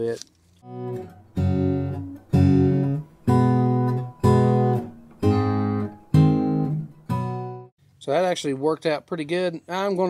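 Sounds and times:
acoustic guitar strumming chords: 0:00.6 - 0:07.7.

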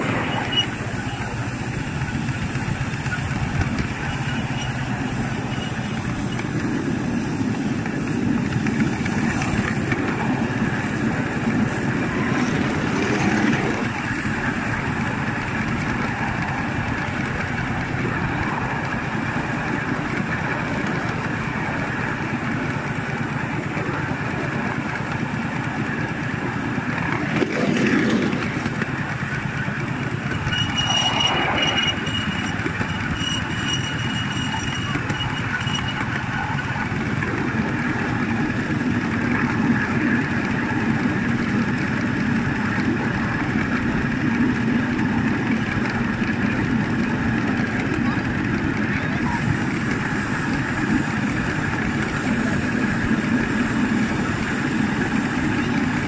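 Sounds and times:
miniature steam locomotive running: 0:00.0 - 0:56.0
thin high tone: 0:30.0 - 0:36.6.

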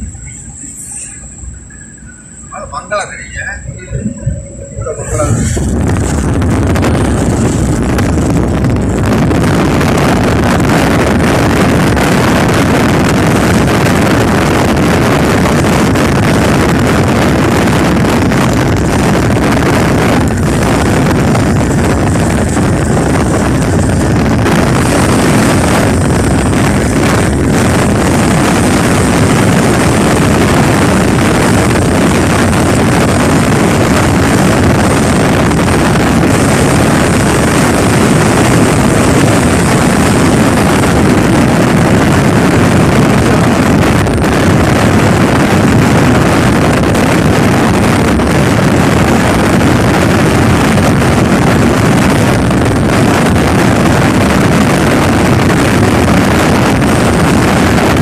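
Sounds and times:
engine droning: 0:00.0 - 0:58.0
wind buffeting microphone: 0:00.0 - 0:58.0.

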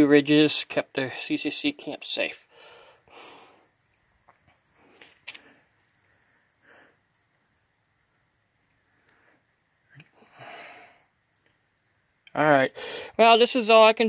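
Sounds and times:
insects chirping: 0:00.0 - 0:14.0
soft breaths: 0:02.4 - 0:03.8, 0:04.7 - 0:07.2, 0:08.7 - 0:11.2, 0:12.7 - 0:13.2.

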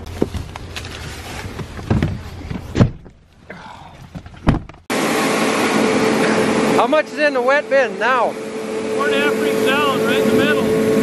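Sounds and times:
knocks and thumps: 0:01.4 - 0:03.2, 0:04.0 - 0:04.9
grain dryer droning: 0:04.9 - 0:11.0.

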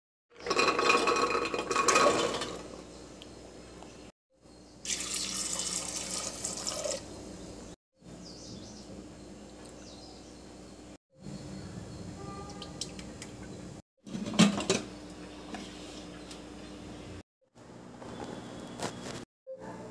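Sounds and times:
water pouring and splashing: 0:04.9 - 0:07.0.

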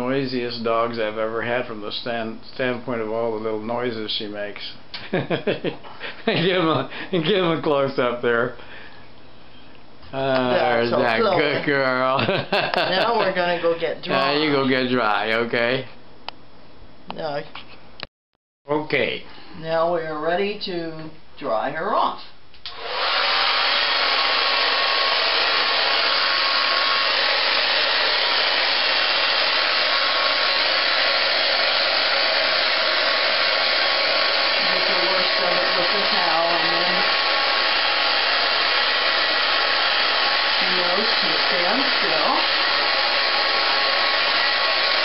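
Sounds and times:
hair dryer blowing: 0:10.5 - 0:14.6, 0:22.6 - 0:45.0.

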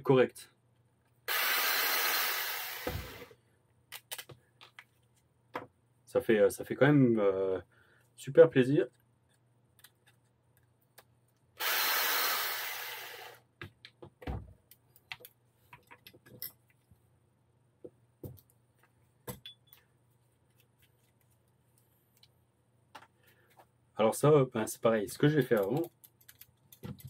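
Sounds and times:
small parts clicking and knocking: 0:25.3 - 0:27.0.

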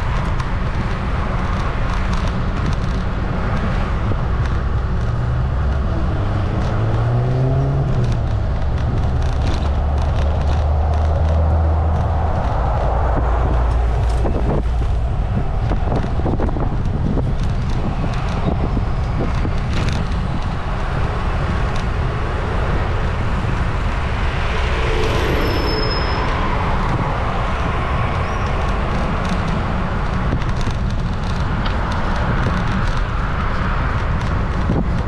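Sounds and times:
road traffic rumble: 0:00.0 - 0:35.0
wind buffeting microphone: 0:00.0 - 0:35.0.

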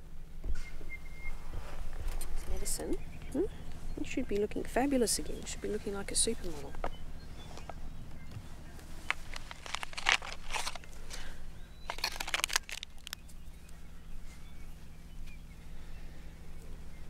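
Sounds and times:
low steady hum: 0:00.0 - 0:17.0
crinkly rustling in hands: 0:08.8 - 0:13.7.

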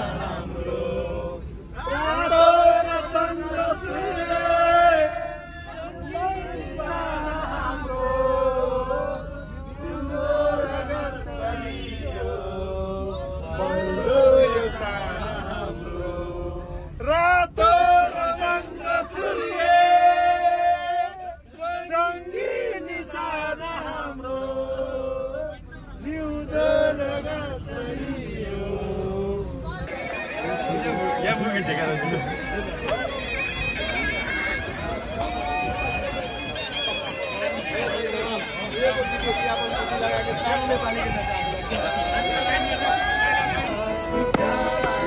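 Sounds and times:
group singing in unison: 0:00.0 - 0:31.3, 0:41.0 - 0:45.0
low background rumble: 0:00.0 - 0:45.0.

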